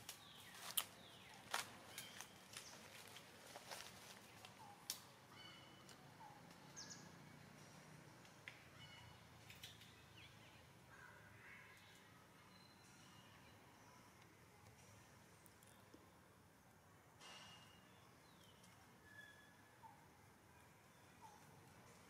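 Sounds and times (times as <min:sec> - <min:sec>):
faint high chirps and squeaks: 0:17.2 - 0:20.0.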